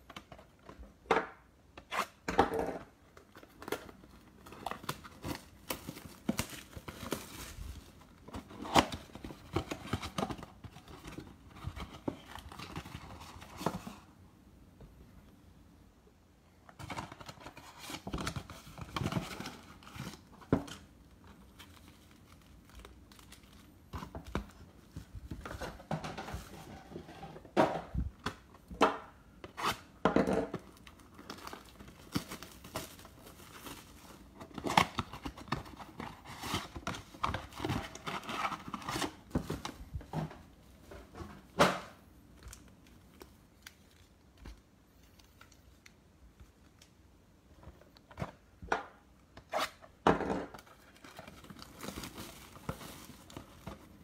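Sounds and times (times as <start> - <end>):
foil packs crinkling: 50.6 - 54.0.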